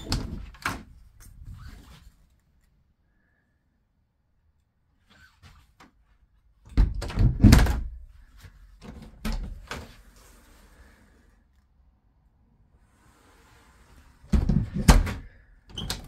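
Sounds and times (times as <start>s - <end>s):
hollow thuds and knocks of doors: 6.7s - 8.0s, 14.3s - 15.4s.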